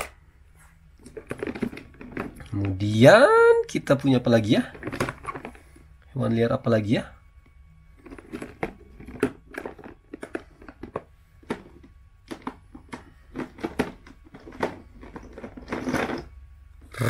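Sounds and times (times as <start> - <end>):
plastic toys knocking and scraping: 1.0 - 3.2, 4.0 - 5.8, 7.9 - 16.4.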